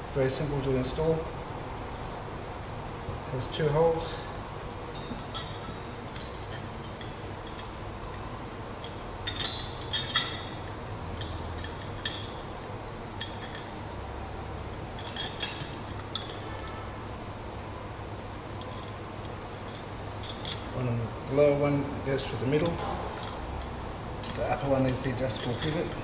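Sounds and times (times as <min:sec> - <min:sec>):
metal clinks of bolts and nuts: 0:04.9 - 0:14.0, 0:15.0 - 0:16.8, 0:18.5 - 0:20.8, 0:22.6 - 0:26.0.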